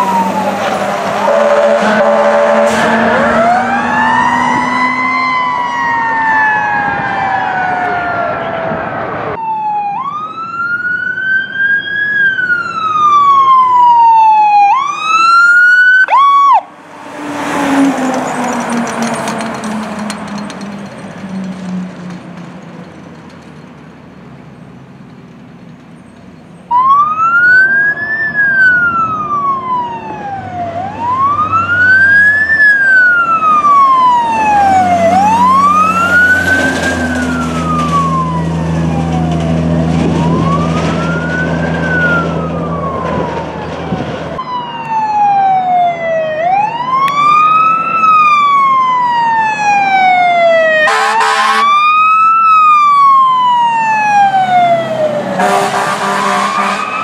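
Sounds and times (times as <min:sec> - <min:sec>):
siren wailing: 0:00.0 - 0:20.6, 0:26.7 - 0:57.0
fire truck engine: 0:00.0 - 0:57.0.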